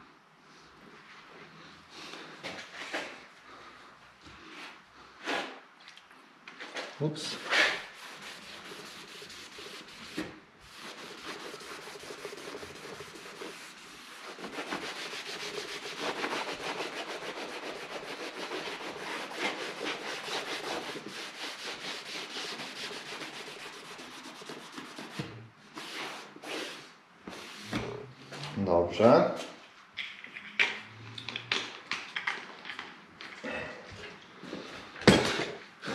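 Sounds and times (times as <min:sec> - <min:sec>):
cloth rubbing on a wooden panel: 0:07.3 - 0:28.0.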